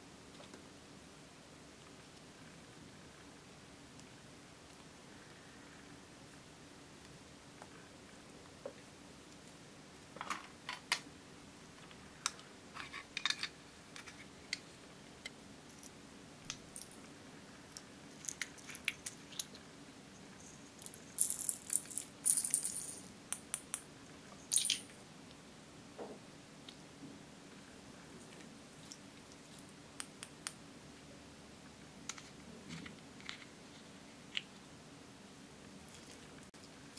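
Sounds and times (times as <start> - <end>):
beads rattling in a container: 20.4 - 23.1.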